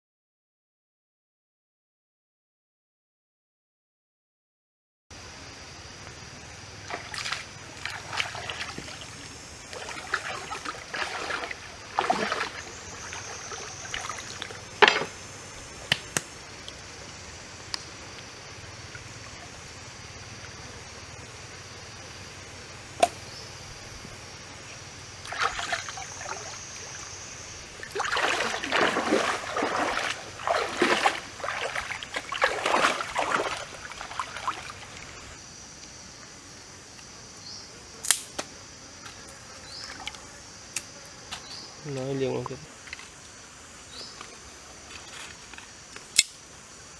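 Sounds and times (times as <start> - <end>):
faint high hiss: 5.2 - 46.9
water splashing: 6.8 - 17.2, 25.2 - 35.4.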